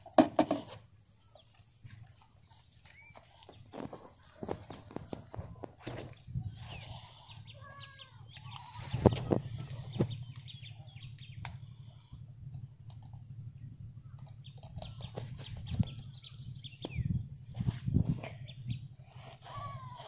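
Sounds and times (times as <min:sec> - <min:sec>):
bird calls: 0:00.1 - 0:20.0
bare feet squelching in mud: 0:00.8 - 0:07.5
steady low drone: 0:05.5 - 0:20.0.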